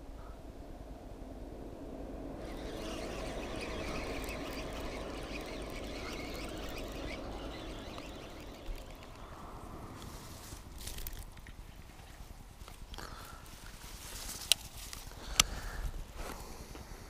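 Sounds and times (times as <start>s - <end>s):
fishing reel whirring: 2.3s - 11.4s.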